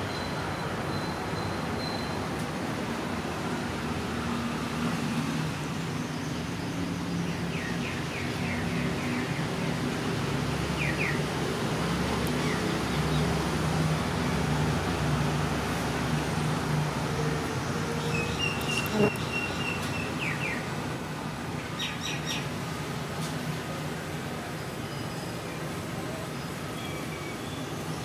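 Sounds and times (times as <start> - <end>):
small bird chirping: 18.2 - 19.9.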